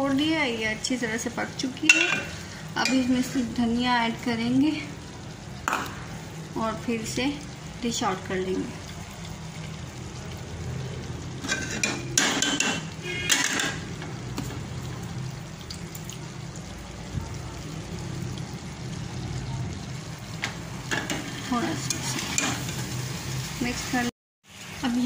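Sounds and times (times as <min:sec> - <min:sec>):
metal ladle scraping cooking pot: 0:11.4 - 0:13.8, 0:20.9 - 0:23.0.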